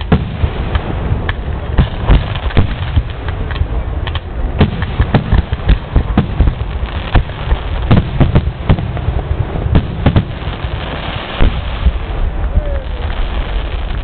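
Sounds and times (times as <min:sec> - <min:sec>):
fireworks background noise: 0:00.0 - 0:14.0
fireworks bursting: 0:00.0 - 0:14.0.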